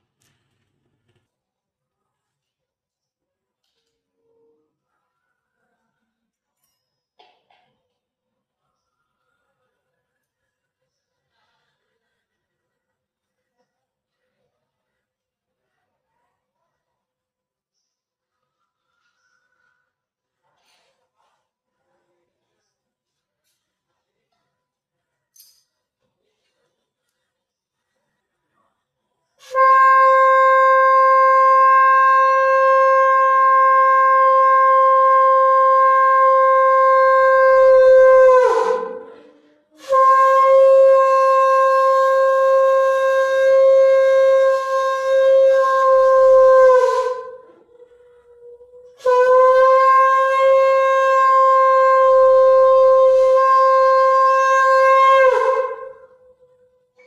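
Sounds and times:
conch shell blasts: 29.4 - 39.2, 39.8 - 47.4, 49.0 - 56.1.

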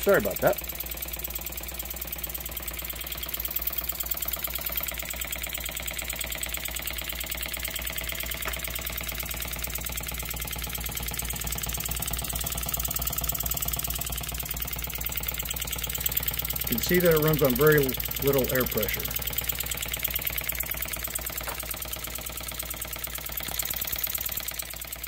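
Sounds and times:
model steam engine beating: 0.0 - 25.0.

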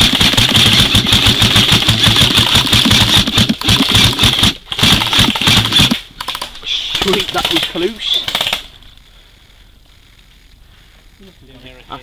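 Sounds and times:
airsoft gun firing bursts: 0.0 - 8.8.

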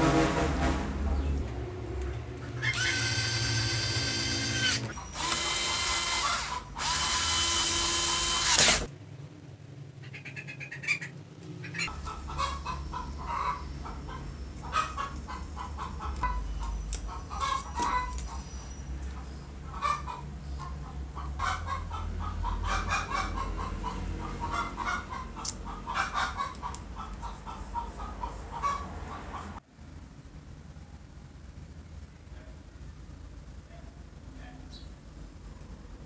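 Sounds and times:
cordless screwdriver whining: 2.6 - 8.9.

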